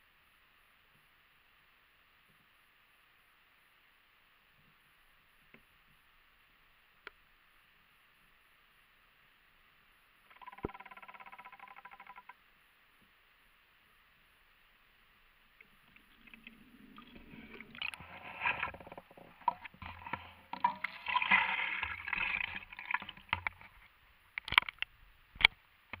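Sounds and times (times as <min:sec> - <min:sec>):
water splashing against camera housing: 0:15.6 - 0:26.0.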